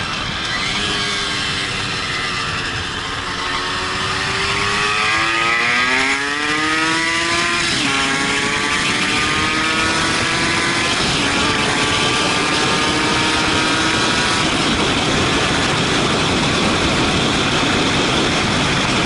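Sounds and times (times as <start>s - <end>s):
motorcycle engine accelerating: 0.0s - 19.0s
wind rush: 0.0s - 19.0s.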